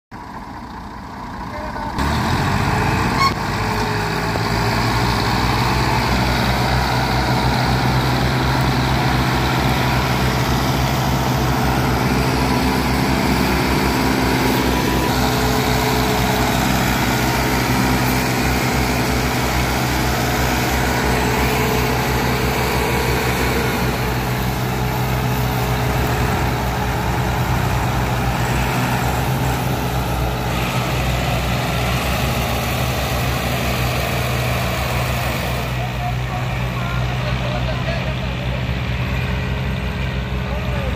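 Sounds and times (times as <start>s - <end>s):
tractor diesel engine under load: 0.1s - 40.9s.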